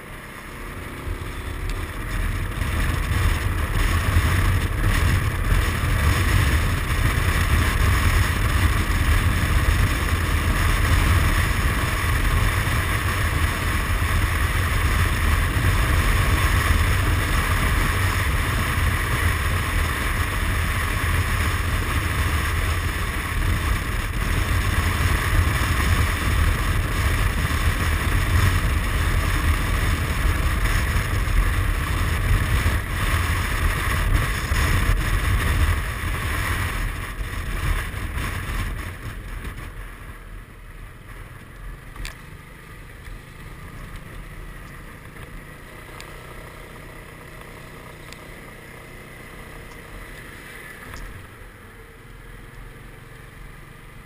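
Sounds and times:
scooter engine: 0:00.0 - 0:54.0
wind noise on microphone: 0:01.1 - 0:40.2.

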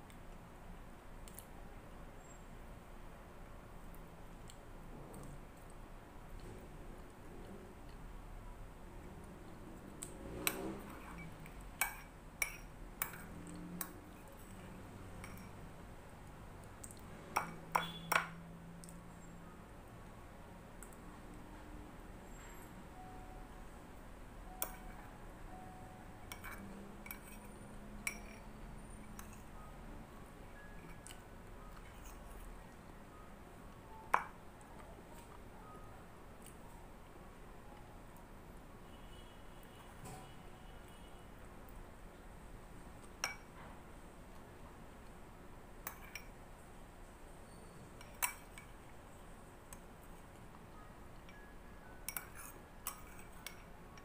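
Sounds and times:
spoon clinking against a bowl: 0:10.4 - 0:15.8, 0:16.9 - 0:18.5, 0:24.5 - 0:25.2, 0:26.2 - 0:29.6, 0:30.5 - 0:32.7, 0:43.2 - 0:43.6, 0:45.8 - 0:46.4, 0:47.5 - 0:48.9, 0:51.2 - 0:54.0.

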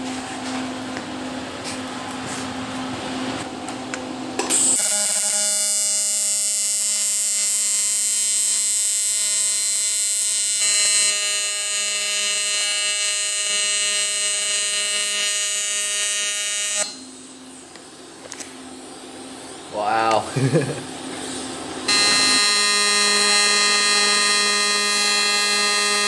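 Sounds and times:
welding arc buzzing: 0:04.3 - 0:17.6, 0:20.4 - 0:26.0.

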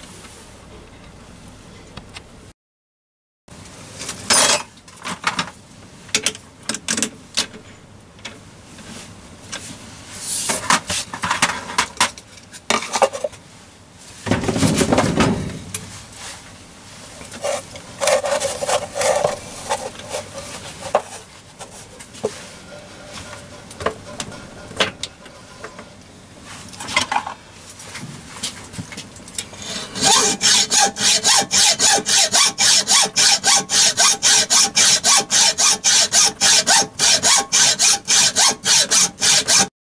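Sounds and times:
wooden board rubbing on metal: 0:29.6 - 0:39.7.

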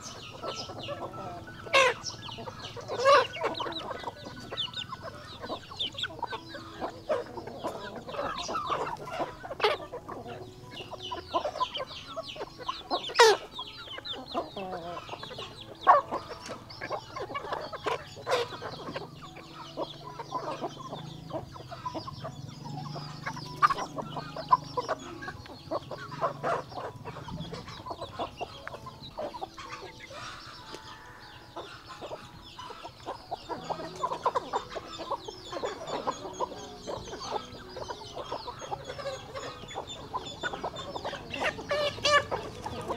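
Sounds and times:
chickens clucking: 0:00.0 - 0:42.9.

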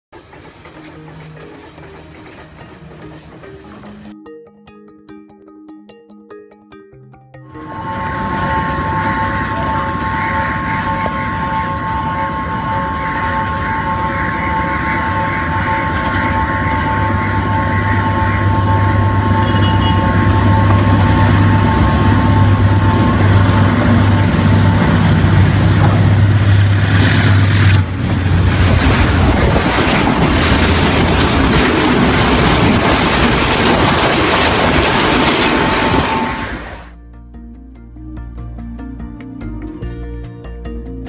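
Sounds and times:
train wheels clattering on rails: 0:00.1 - 0:04.1, 0:07.6 - 0:17.9, 0:20.6 - 0:36.9
diesel locomotive engine drone: 0:00.2 - 0:04.4, 0:07.4 - 0:41.0
high two-note tone: 0:01.6 - 0:26.3.

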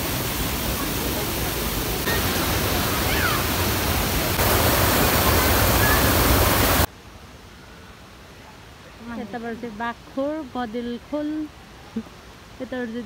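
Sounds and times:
waterfall rushing: 0:00.0 - 0:06.9.

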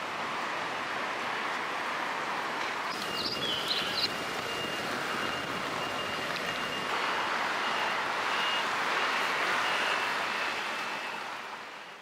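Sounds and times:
city street traffic: 0:00.0 - 0:12.0.

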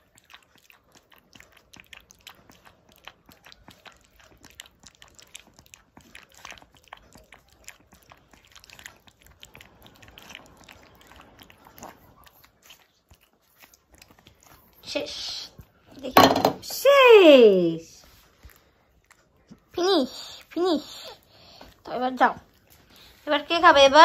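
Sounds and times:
puppy lapping from steel bowl: 0:00.0 - 0:16.8.

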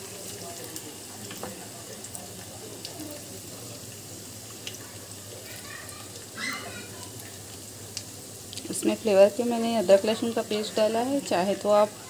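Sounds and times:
oil sizzling: 0:00.0 - 0:12.0.

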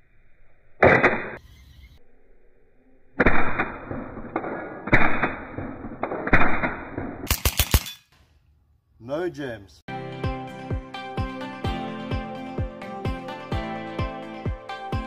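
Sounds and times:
air pistol shots: 0:03.2 - 0:08.2
sharp clicks: 0:07.2 - 0:08.3.

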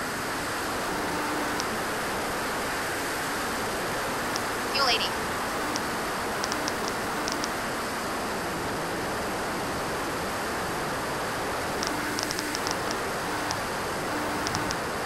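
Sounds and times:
short high ticks: 0:05.6 - 0:07.6, 0:11.8 - 0:13.6, 0:14.2 - 0:14.8.

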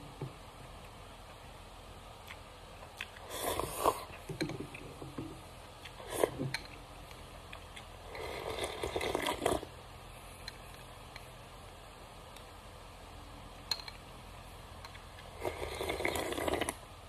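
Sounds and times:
noodles slurped and chewed: 0:03.0 - 0:04.3, 0:08.1 - 0:09.7, 0:15.3 - 0:16.8
broth slurped from bowl: 0:03.2 - 0:04.2, 0:05.9 - 0:06.5, 0:08.1 - 0:09.7, 0:15.3 - 0:16.8.

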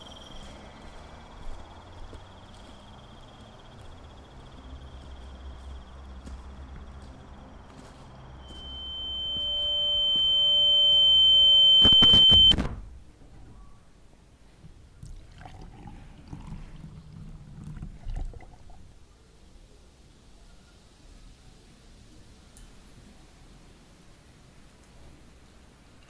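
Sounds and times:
high-pitched electronic tone: 0:08.4 - 0:12.6
clicks: 0:08.6 - 0:12.6.

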